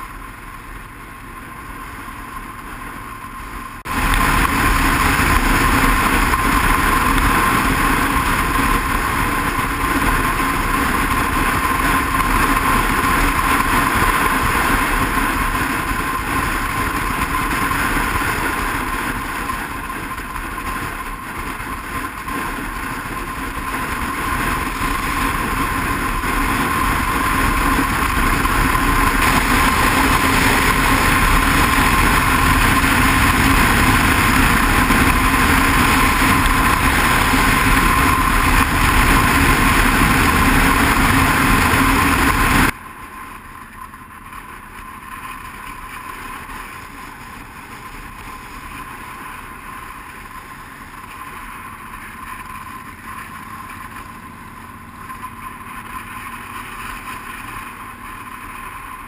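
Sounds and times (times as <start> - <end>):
motorcycle engine drone: 0.0 - 59.0
wind rushing over microphone: 1.4 - 42.8.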